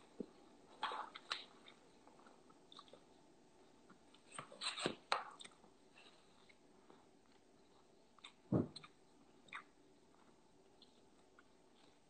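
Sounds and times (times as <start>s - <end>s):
person chewing food: 0.1s - 12.0s
mouth clicks and smacks: 7.3s - 12.0s.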